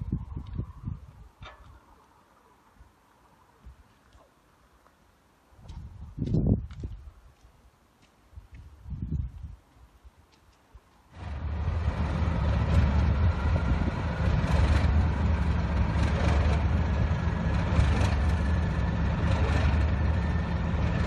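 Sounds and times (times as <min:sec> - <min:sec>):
diesel locomotive idling: 0:11.2 - 0:21.0.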